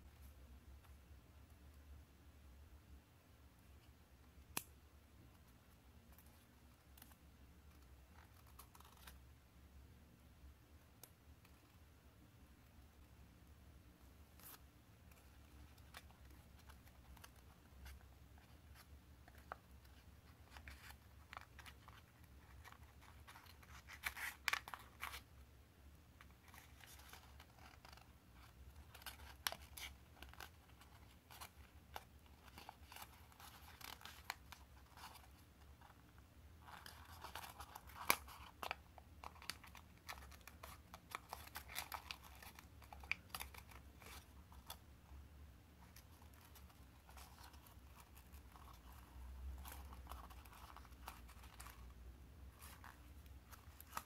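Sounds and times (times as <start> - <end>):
paper rustling and crinkling: 14.3 - 25.3, 26.2 - 36.0, 36.6 - 44.8, 45.8 - 51.9, 52.5 - 54.0.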